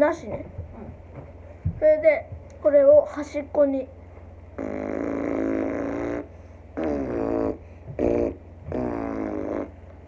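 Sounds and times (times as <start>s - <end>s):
child lip buzzing bass: 4.5s - 10.0s.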